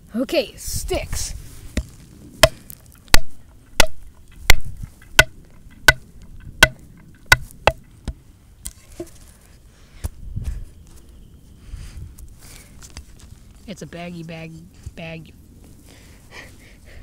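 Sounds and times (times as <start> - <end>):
sharp wooden strikes: 1.7 - 8.2.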